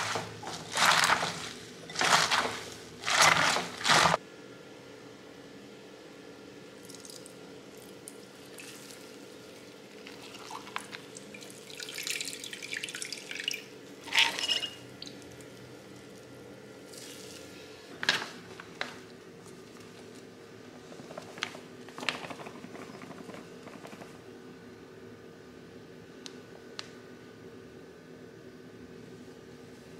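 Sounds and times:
dry flour pouring: 0.0s - 4.2s
juice splashing and dripping: 6.8s - 9.1s.

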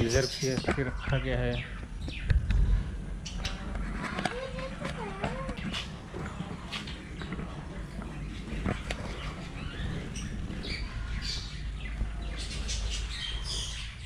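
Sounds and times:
budgerigars chirping: 0.0s - 2.3s, 8.2s - 14.0s
low microphone rumble: 0.0s - 14.0s.

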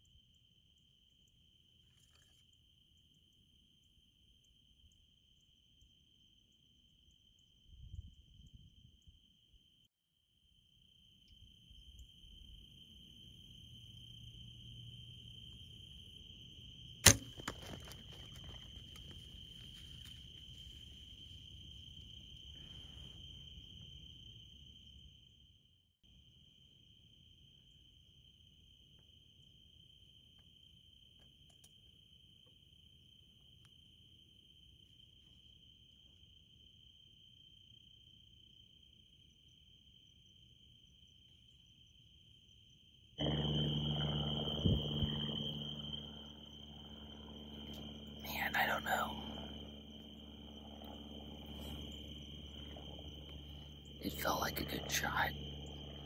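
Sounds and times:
insects chirping: 0.0s - 56.0s
crickets trilling: 10.6s - 56.0s
bowstring crack: 17.0s - 20.7s
rustling and clatter: 17.2s - 21.4s.

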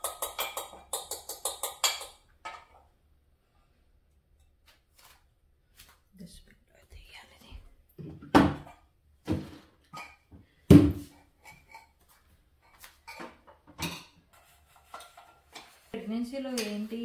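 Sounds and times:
kitchen knocks and clunks: 0.0s - 2.8s, 7.9s - 11.9s, 12.8s - 15.8s.

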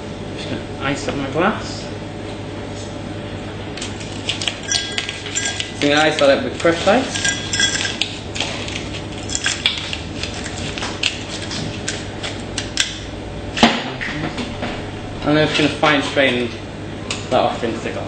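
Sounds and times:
ice clinking in a glass: 4.7s - 5.9s, 7.1s - 8.0s.

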